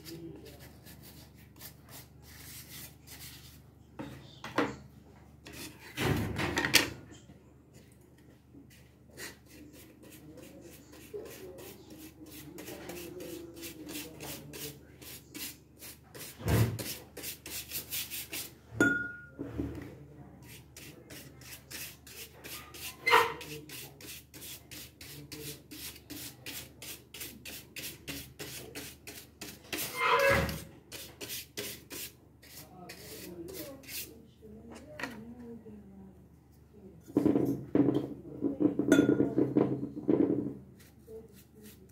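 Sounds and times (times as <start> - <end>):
paintbrush scrubbing wood: 0.0 - 3.6, 8.7 - 18.6, 20.5 - 29.9, 30.9 - 34.1.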